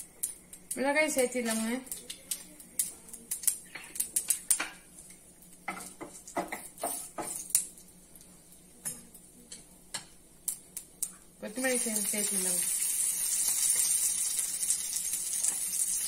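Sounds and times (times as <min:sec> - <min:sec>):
spices crackling in hot oil: 0:00.0 - 0:16.0.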